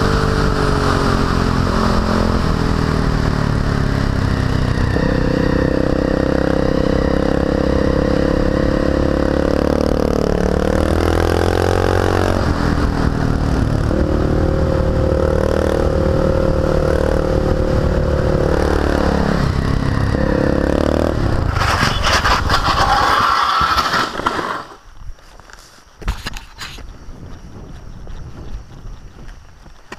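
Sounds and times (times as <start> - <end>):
motorcycle engine revving: 0.0 - 24.8
motorcycle scraping and skidding on asphalt: 4.0 - 26.8.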